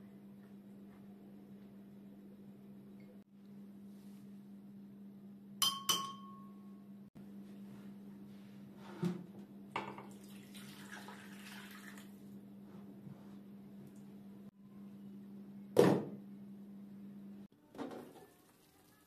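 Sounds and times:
faint steady hum: 0.0 - 18.4
sharp glass clinks: 5.6 - 6.5
water pouring into pan: 10.1 - 12.2.

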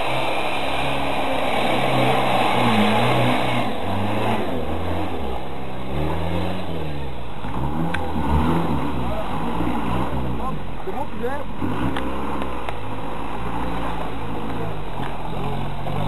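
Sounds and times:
engine revving hard: 0.0 - 12.6.

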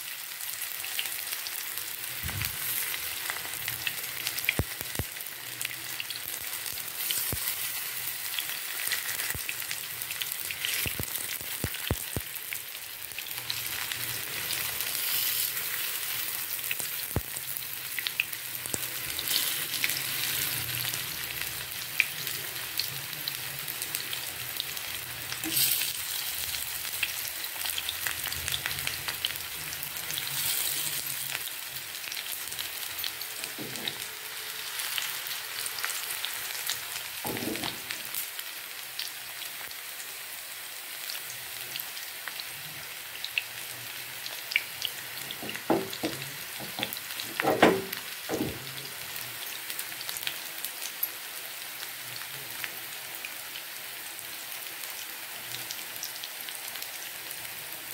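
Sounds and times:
food sizzling in oil: 0.0 - 57.9.

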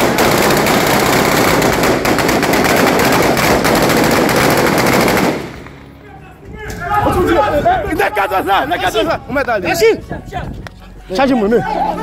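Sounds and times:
rapid automatic gunfire: 0.0 - 5.6.

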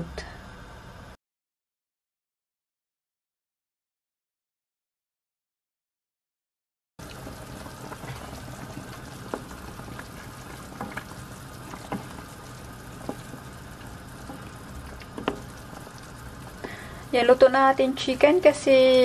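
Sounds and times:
broth bubbling in a pan: 7.0 - 19.0
wooden spoon knocking a pan: 15.1 - 15.6.

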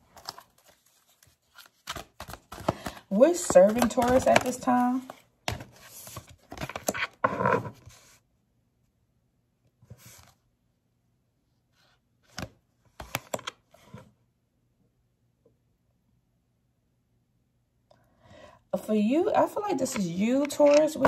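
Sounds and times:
cards being shuffled: 0.0 - 7.2.

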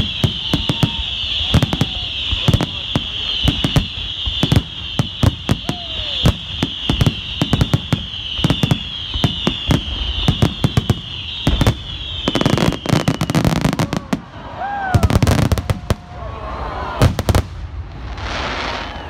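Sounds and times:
shrill whistle sliding down: 0.0 - 14.0
fireworks bangs: 0.0 - 19.0
fireworks crackling: 0.0 - 19.0.

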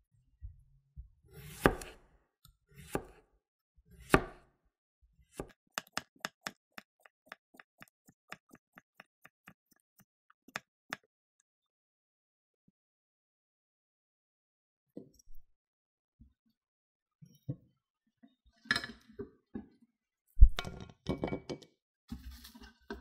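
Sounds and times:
knife chopping on wooden board: 1.4 - 2.0, 2.8 - 3.2, 4.0 - 4.4, 5.3 - 11.1.

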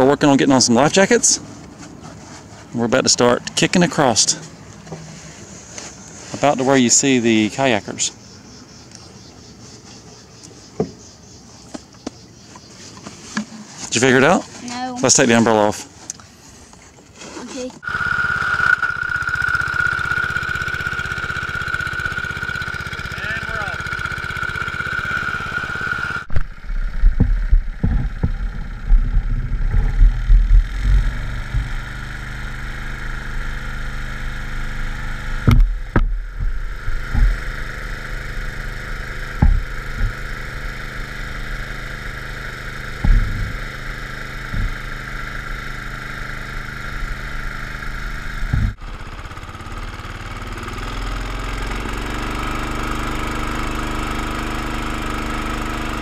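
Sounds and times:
lawn mower engine running: 0.0 - 16.5, 17.1 - 56.0
heavy low thumps: 43.0 - 43.6.

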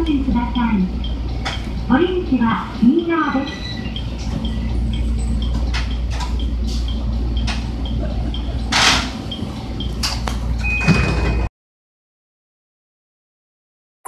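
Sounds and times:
steady high tone: 0.0 - 10.9
train low hum: 0.0 - 11.5
train doors hissing open: 8.7 - 9.2.

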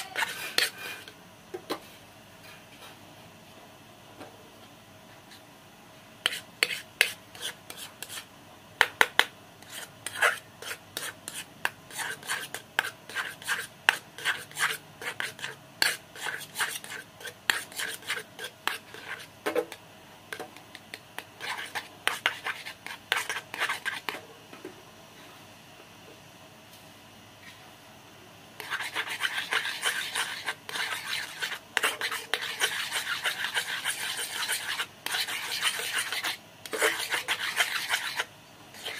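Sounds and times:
metal spoon stirring paste in pot: 0.0 - 1.2, 6.2 - 8.3, 8.9 - 19.3, 20.6 - 24.2, 28.6 - 38.9.

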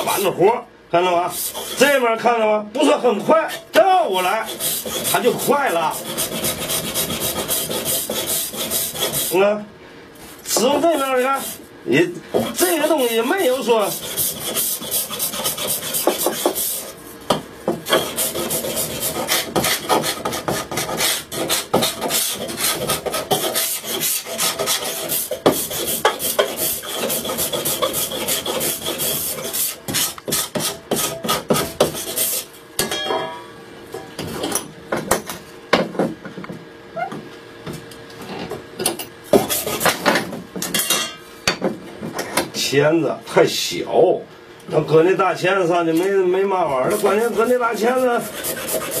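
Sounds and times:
hand file rasping wood: 1.3 - 1.9, 4.2 - 9.4, 12.3 - 17.0, 17.8 - 32.5, 39.3 - 40.0, 46.9 - 49.0.

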